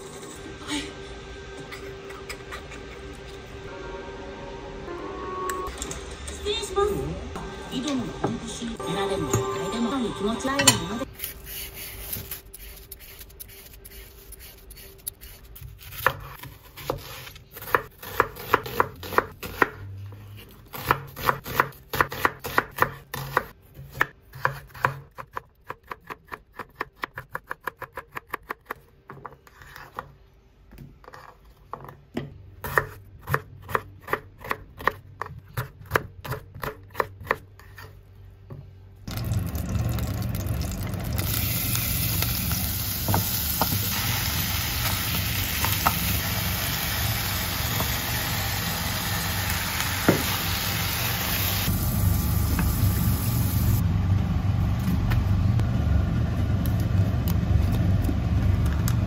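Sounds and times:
chicken sizzling in hot oil: 39.1 - 53.8.

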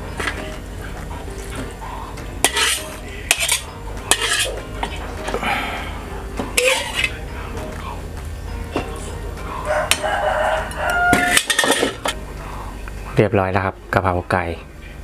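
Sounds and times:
spatula scraping a wok: 2.4 - 5.1, 6.5 - 7.2, 9.8 - 12.2.

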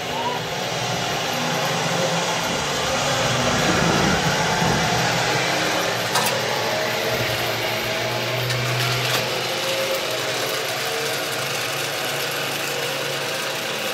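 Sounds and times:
low hum: 0.0 - 9.0
zip line pulleys whirring: 0.0 - 13.9.

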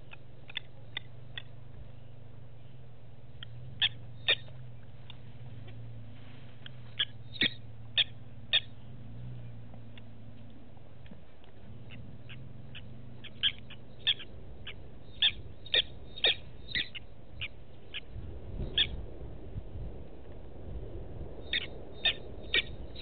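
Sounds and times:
sharp bird chirps: 0.0 - 5.8, 6.5 - 8.9, 11.8 - 19.0, 21.4 - 23.0
steady low hum: 0.0 - 23.0.

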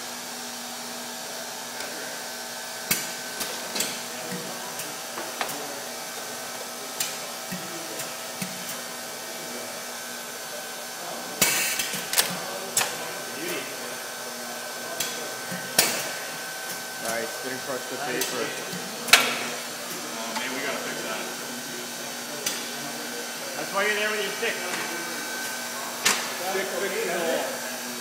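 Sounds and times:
pneumatic cylinders clacking: 11.4 - 13.0.

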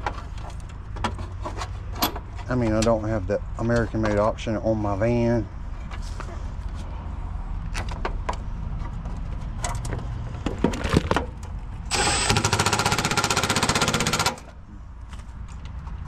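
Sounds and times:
impact driver hammering: 11.9 - 14.5.

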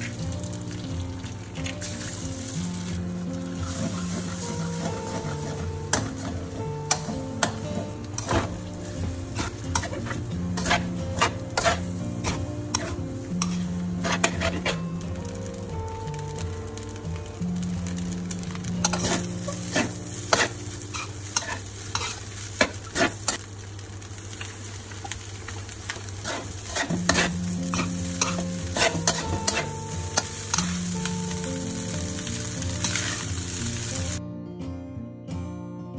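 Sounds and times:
rice sizzling: 0.0 - 34.2
spatula scraping a metal wok: 3.5 - 14.9, 18.8 - 23.4, 26.1 - 30.8, 32.8 - 33.5.

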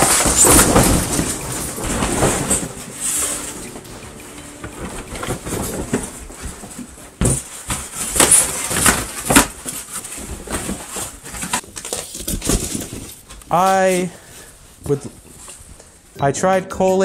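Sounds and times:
boxes crashing: 0.0 - 13.4
cardboard and foam rustling: 0.0 - 15.8.

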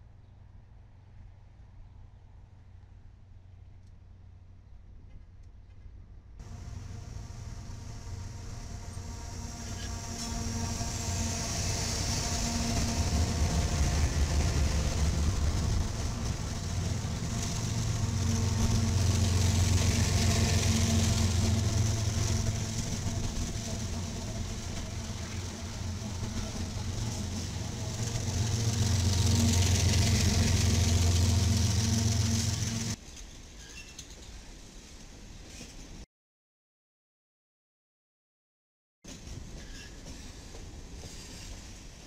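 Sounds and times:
diesel locomotive engines droning: 6.4 - 33.0
train rolling on rails: 6.4 - 36.0, 39.1 - 42.0.

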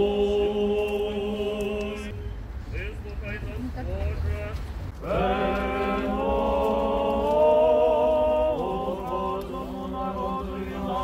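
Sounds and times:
voices chanting long notes: 0.0 - 2.1, 5.0 - 11.0.

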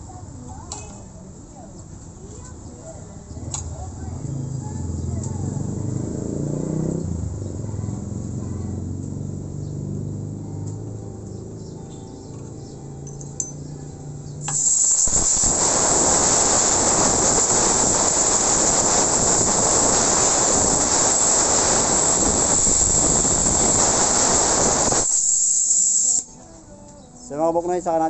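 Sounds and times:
compressed air blow gun hissing: 14.4 - 26.4.

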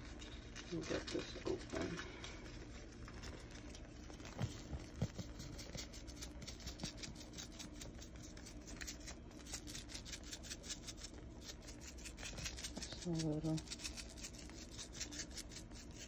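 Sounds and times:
package crinkling and scratching: 0.0 - 16.0.

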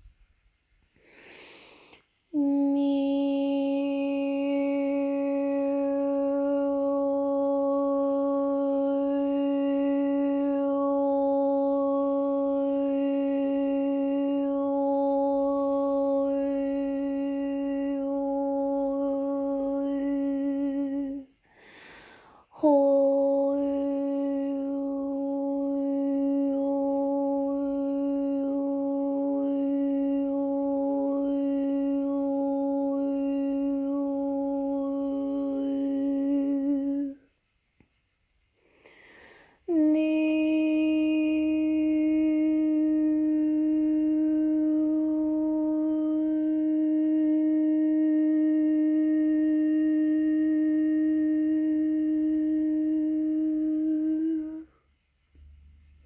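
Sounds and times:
quick breath: 1.0 - 2.1, 21.4 - 22.5, 38.6 - 39.6
woman's voice toning a long note: 2.3 - 21.2.

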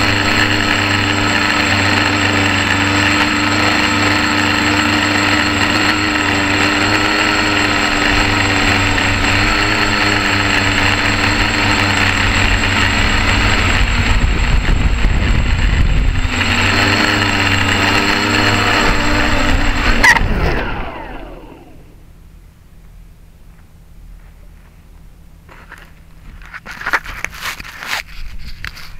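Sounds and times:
quadcopter motors whining: 0.0 - 22.2
low rumble: 8.3 - 22.6.

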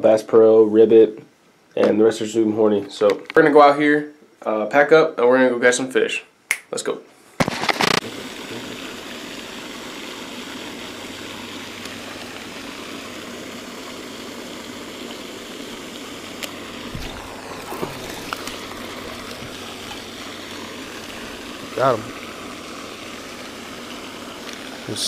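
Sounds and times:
fountain spray splashing on water: 7.4 - 25.0.

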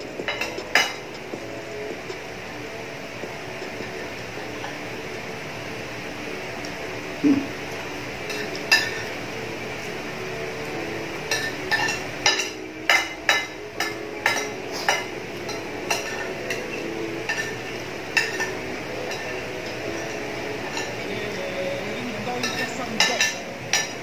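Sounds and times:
metal spoon scraping dishes: 0.2 - 1.4, 8.2 - 9.2, 11.3 - 21.5, 22.4 - 24.0.

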